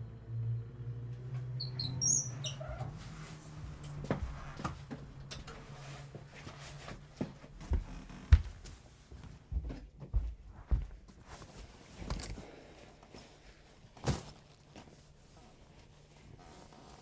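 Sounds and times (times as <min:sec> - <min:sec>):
short high squeaks: 0:01.6 - 0:03.0.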